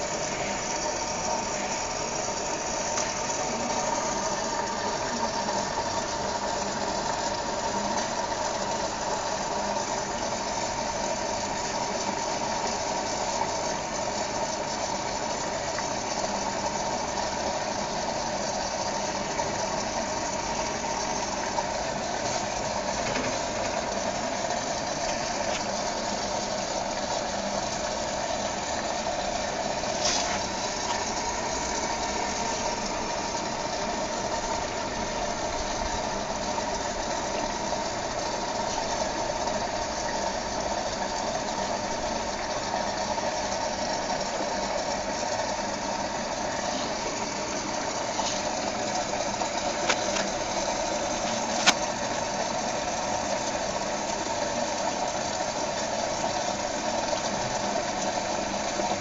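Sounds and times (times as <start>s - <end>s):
washing machine humming: 0.0s - 59.0s
sharp click: 51.5s - 51.8s.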